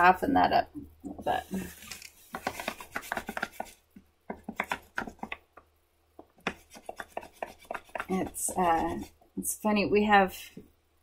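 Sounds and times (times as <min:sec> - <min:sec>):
pencil scratching on paper: 0:02.4 - 0:03.8, 0:06.4 - 0:09.2.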